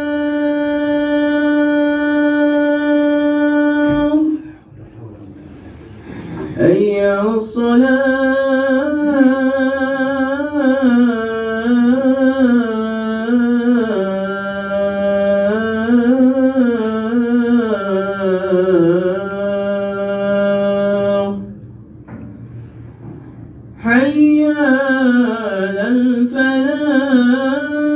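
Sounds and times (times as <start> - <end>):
man chanting call to prayer: 0.0 - 21.6.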